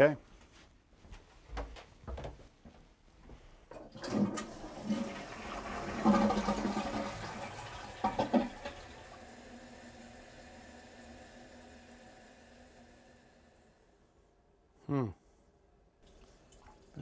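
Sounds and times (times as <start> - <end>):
toilet flushing: 3.7 - 14.0.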